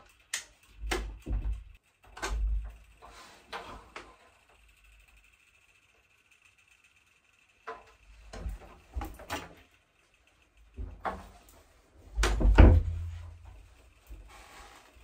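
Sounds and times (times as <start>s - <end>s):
door rattling and knocking: 12.2s - 13.1s.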